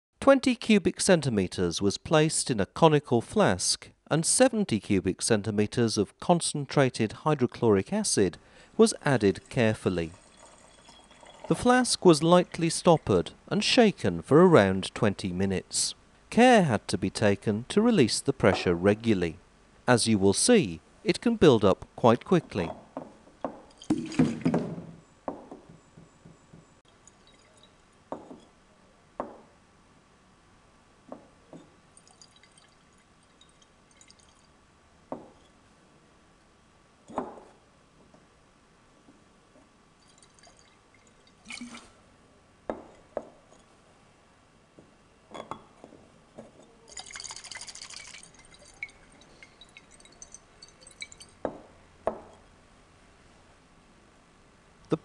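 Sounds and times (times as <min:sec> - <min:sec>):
liquid sloshing in glass flask: 0:09.4 - 0:11.6, 0:23.7 - 0:24.7, 0:27.0 - 0:27.8, 0:32.0 - 0:34.5, 0:40.0 - 0:42.0, 0:46.9 - 0:51.4
glass knocks: 0:22.7 - 0:26.8, 0:28.1 - 0:28.5, 0:50.9 - 0:52.4.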